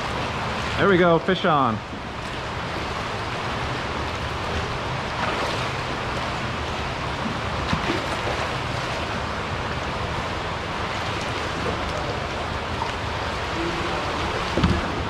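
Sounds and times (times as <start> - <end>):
water sloshing against pilings: 0.0 - 15.0
dull thump: 14.5 - 15.0.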